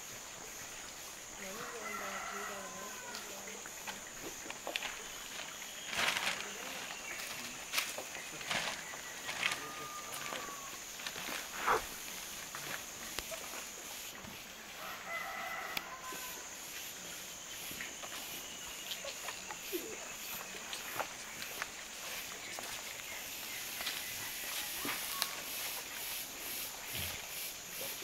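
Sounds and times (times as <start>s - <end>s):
rooster crowing: 1.4s - 3.5s, 8.8s - 10.8s, 14.8s - 16.6s
animals scuffling in leaf litter: 1.4s - 28.0s.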